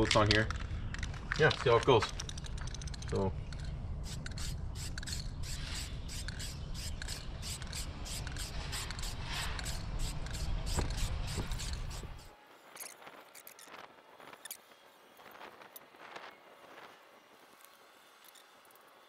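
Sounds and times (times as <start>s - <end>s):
spray paint can hissing: 4.0s - 12.3s.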